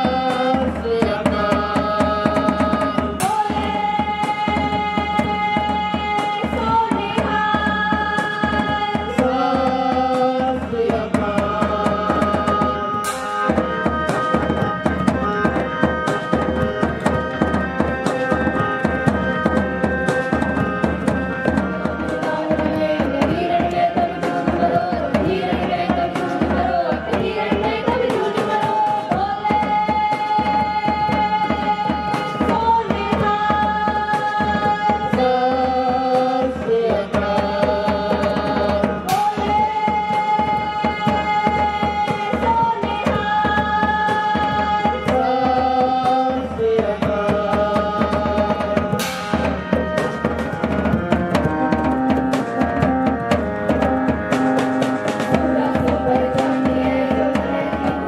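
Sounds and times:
group of voices singing a hymn: 0:00.0 - 0:13.2, 0:20.0 - 0:49.8, 0:54.4 - 0:58.0
harmonium held notes: 0:00.0 - 0:58.0
fast drum beat: 0:41.1 - 0:58.0.

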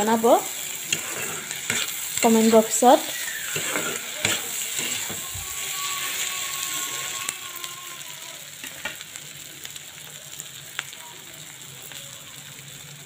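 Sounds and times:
spatula scraping pan: 0:00.0 - 0:07.4
fish frying sizzle: 0:00.0 - 0:13.0.

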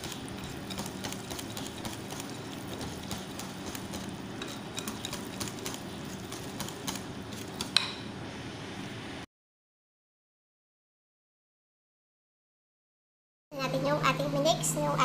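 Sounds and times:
wire whisk clicking on glass bowl: 0:00.0 - 0:08.0.

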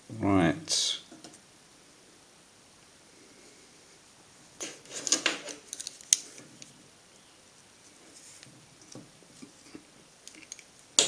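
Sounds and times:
small parts clicking and rattling: 0:04.6 - 0:06.7.

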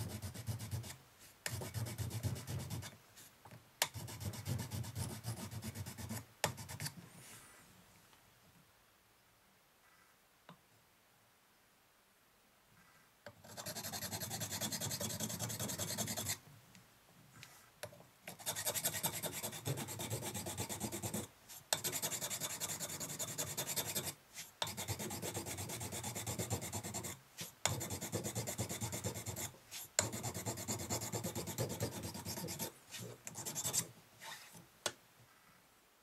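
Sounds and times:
sanding wood by hand: 0:13.5 - 0:16.4, 0:18.4 - 0:34.5.

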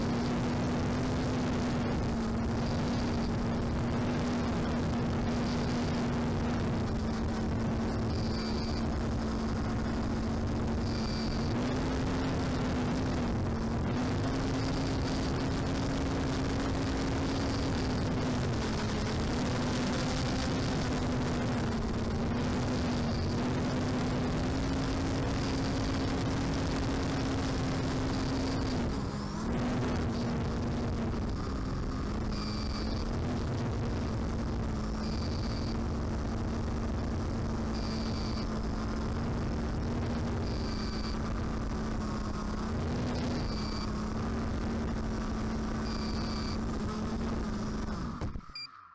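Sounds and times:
drone motor humming: 0:00.0 - 0:48.7
short high beep: 0:48.4 - 0:48.8.

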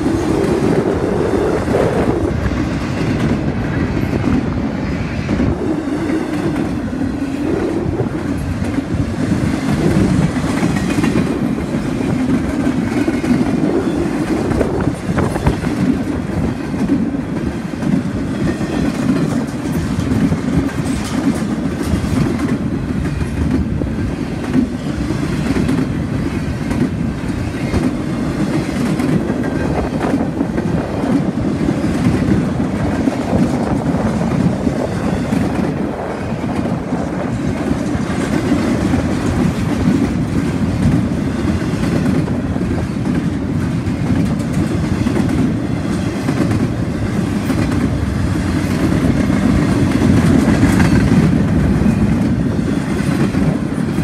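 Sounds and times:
freight train rolling past: 0:00.0 - 0:54.0
steel wheels clacking on rail: 0:00.0 - 0:54.0.

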